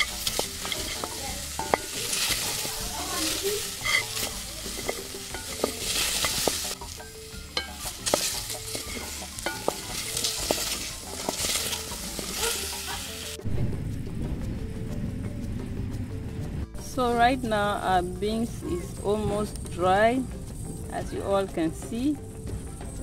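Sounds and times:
beans sizzling in a pot: 0.0s - 13.4s.

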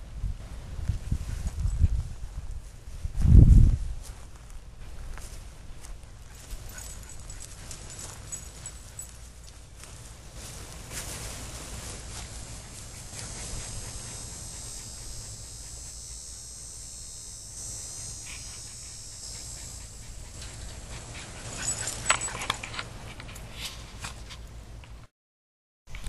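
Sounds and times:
steady low rumble: 0.0s - 23.5s
dogs whimpering: 18.3s - 22.7s.

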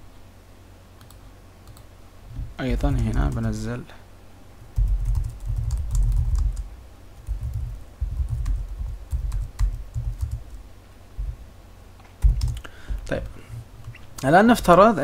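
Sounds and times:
typing on computer keyboard: 1.0s - 1.8s, 4.8s - 10.6s, 12.2s - 12.7s.

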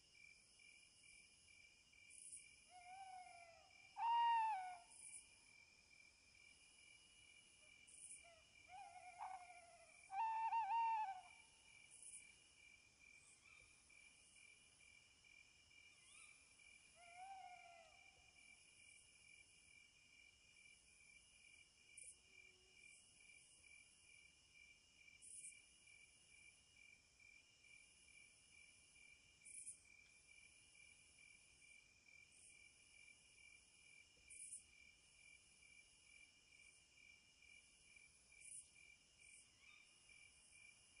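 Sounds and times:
insects trilling: 8.0s - 11.4s.

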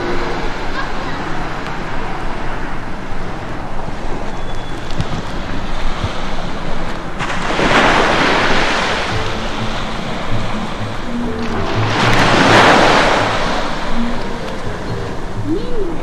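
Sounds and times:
low held notes: 0.0s - 4.3s, 8.4s - 16.0s
surf rushing: 0.0s - 16.0s
wind: 0.0s - 16.0s.

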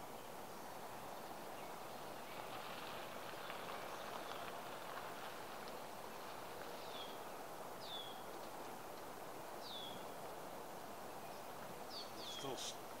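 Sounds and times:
outdoor background hiss: 0.0s - 13.0s
bird chirping: 6.1s - 8.3s, 9.6s - 10.2s, 11.1s - 12.8s.

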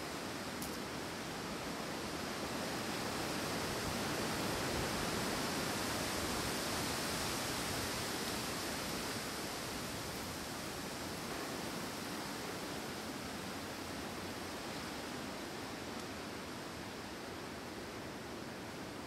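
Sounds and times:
wind through forest trees: 0.0s - 19.0s.

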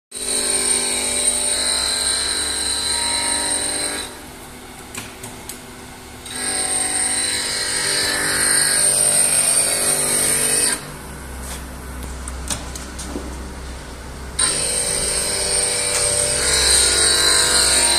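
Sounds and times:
motor hum: 0.3s - 17.9s
grinding wheel on steel blade: 14.4s - 17.9s.

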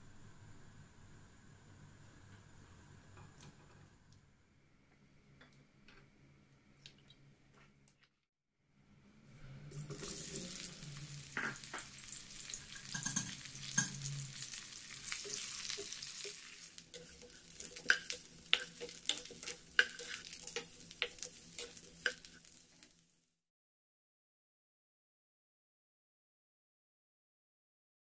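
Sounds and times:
eggplant sizzling in hot oil: 9.7s - 23.4s.

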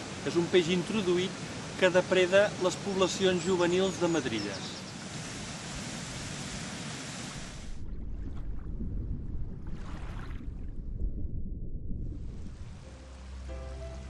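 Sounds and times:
river water rushing over weir: 0.0s - 4.1s
low rumble with hiss: 7.5s - 14.0s.

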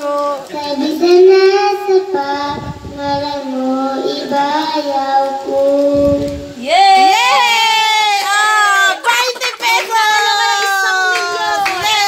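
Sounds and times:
girl singing into microphone: 0.0s - 6.6s.

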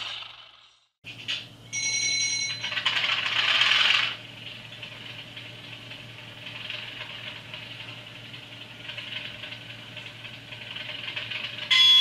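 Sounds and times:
steady ringing tone: 1.6s - 3.5s, 10.7s - 12.0s.

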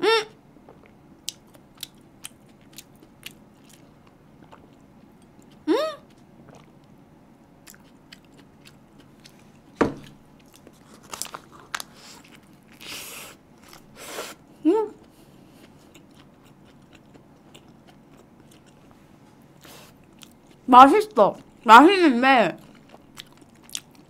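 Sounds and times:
person humming: 5.7s - 6.0s
sharp thump: 9.8s - 10.1s
bites and crunches: 10.4s - 13.0s.

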